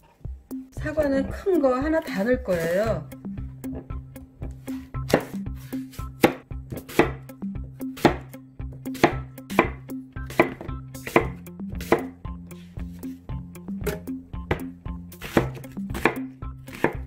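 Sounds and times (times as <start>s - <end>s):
knife cutting an apple: 4.6s - 13.2s, 13.8s - 17.0s
knife striking wooden cutting board: 5.1s - 5.4s, 6.2s - 7.2s, 8.0s - 8.3s, 8.9s - 12.1s, 13.8s - 17.0s.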